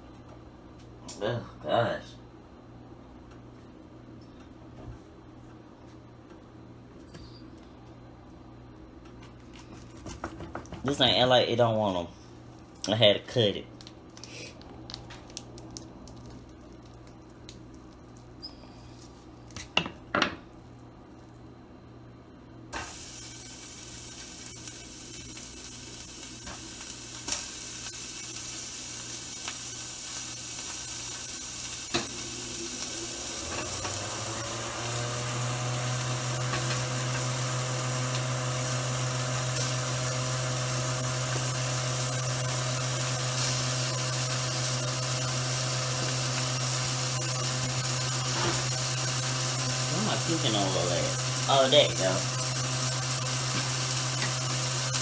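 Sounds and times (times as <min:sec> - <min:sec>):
fan motor humming: 0:22.2 - 0:55.0
ground beef sizzling in a pan: 0:22.8 - 0:55.0.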